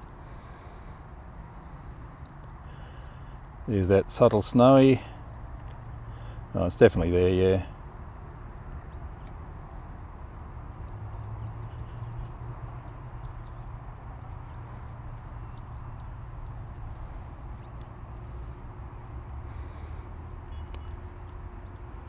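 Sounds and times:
low outdoor rumble: 0.0s - 22.0s
bird chirping: 10.6s - 18.6s, 19.5s - 21.9s.

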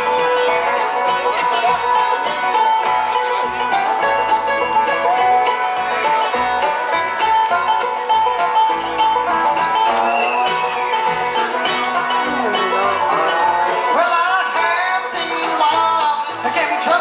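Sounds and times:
acoustic guitar: 0.0s - 17.0s
fiddle melody: 0.0s - 17.0s
picked banjo notes: 0.0s - 17.0s.

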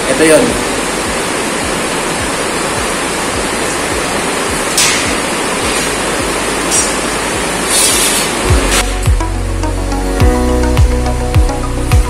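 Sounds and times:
loud rushing noise: 0.3s - 9.4s
steel bar scraping: 7.7s - 8.9s.

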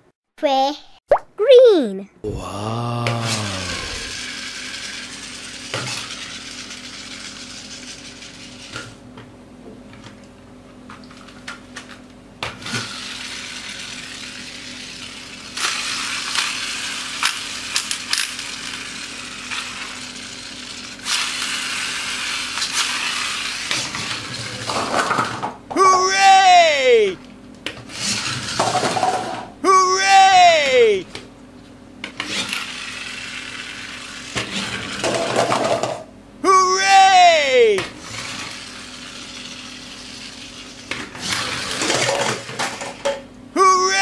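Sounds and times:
toy wheels rattling and whirring: 4.1s - 9.0s, 12.6s - 24.8s, 32.2s - 35.4s, 38.0s - 42.8s.

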